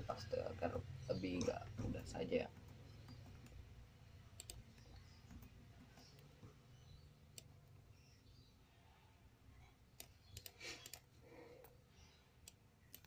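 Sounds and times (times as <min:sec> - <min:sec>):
laptop keys and touchpad clicking: 0:04.3 - 0:07.6, 0:12.4 - 0:13.0.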